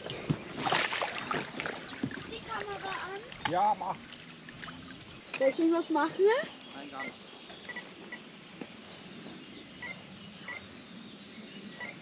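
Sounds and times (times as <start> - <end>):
faint outdoor ambience: 0.0 - 12.0
electronic bite alarm beeps: 7.0 - 8.2, 9.8 - 10.6.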